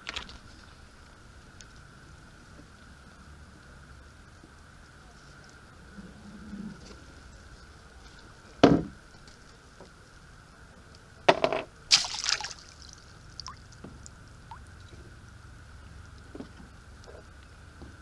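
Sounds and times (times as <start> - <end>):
water splashing: 11.9 - 15.2
faint water drips: 11.9 - 17.9.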